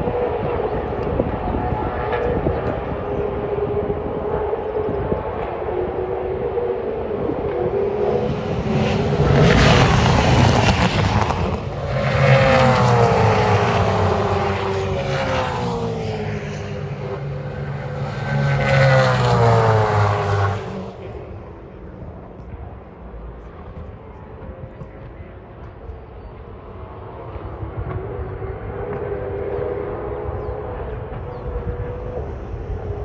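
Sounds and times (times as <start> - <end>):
race cars passing at speed: 0.0 - 33.0.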